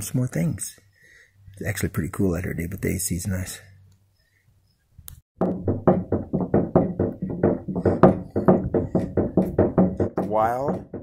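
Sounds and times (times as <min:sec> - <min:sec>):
footsteps on hollow wooden planks: 0:05.4 - 0:11.0.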